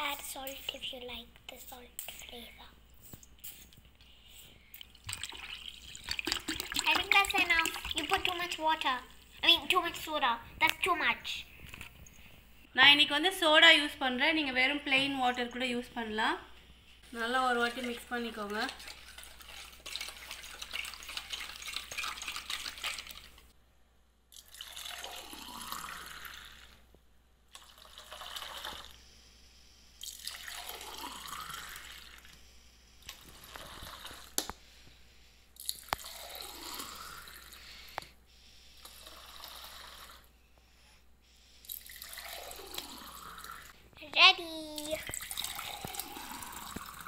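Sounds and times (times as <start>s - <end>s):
liquid pouring into a glass: 4.9s - 8.5s, 24.3s - 26.7s, 27.6s - 29.0s, 30.0s - 32.3s, 35.6s - 37.5s, 41.7s - 43.7s, 45.0s - 47.0s
juice stirred in a steel bowl: 4.9s - 9.4s, 17.4s - 23.5s, 35.6s - 37.7s, 41.7s - 43.8s, 45.0s - 47.0s.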